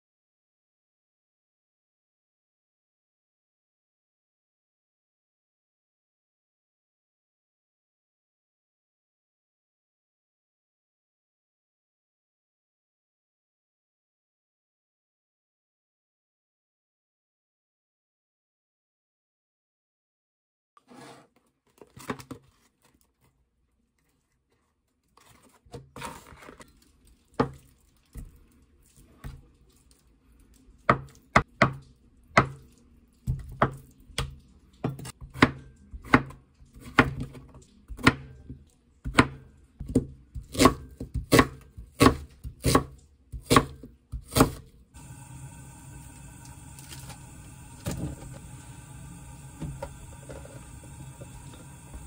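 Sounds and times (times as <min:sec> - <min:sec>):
knife chopping on wooden board: 0:39.1 - 0:44.6.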